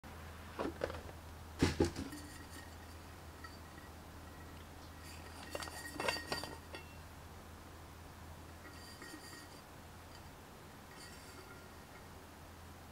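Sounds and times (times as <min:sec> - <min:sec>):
low steady hum: 0:00.0 - 0:12.9
metal bottle clinks and knocks: 0:01.8 - 0:07.0, 0:08.6 - 0:10.3.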